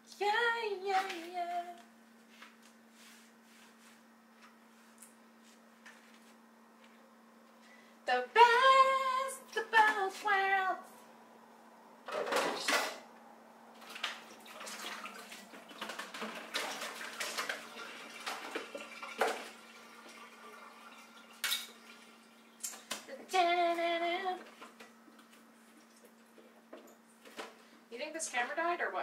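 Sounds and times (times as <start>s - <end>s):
tap water rushing: 13.8s - 22.9s.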